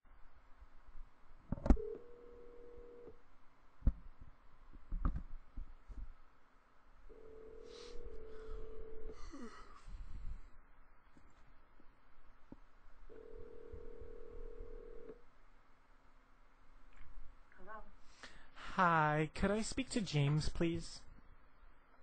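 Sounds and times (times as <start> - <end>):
telephone ringback tone: 1.8 - 3.1, 7.1 - 9.2, 13.1 - 15.2.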